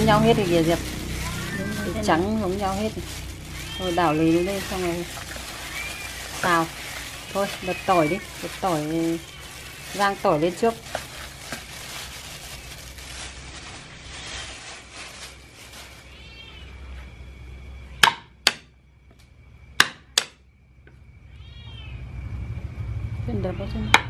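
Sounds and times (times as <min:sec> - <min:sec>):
plastic gloves rustling: 0:00.0 - 0:16.7
cat meowing: 0:16.0 - 0:16.8, 0:21.3 - 0:22.0.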